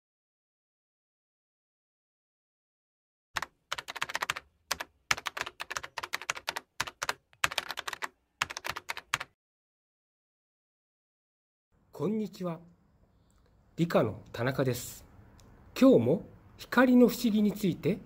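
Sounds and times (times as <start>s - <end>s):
keyboard typing clicks: 3.4s - 9.3s.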